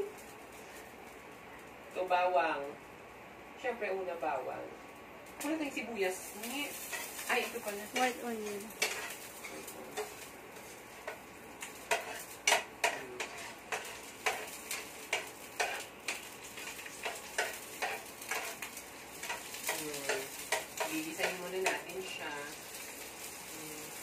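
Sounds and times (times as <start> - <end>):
garlic sizzling in oil: 5.3 - 24.0
spatula scraping and tapping pan: 6.7 - 22.8.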